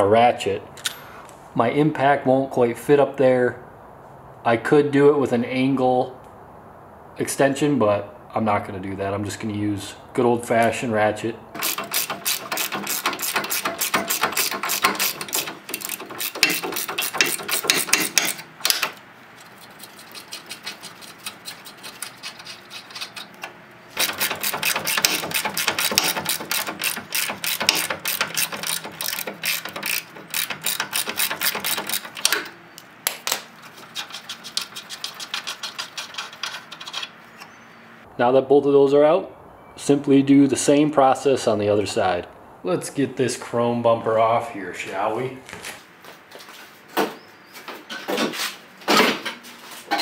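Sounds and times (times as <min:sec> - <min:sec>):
hand ratchet clicking: 0:11.6 - 0:32.5, 0:33.3 - 0:37.2.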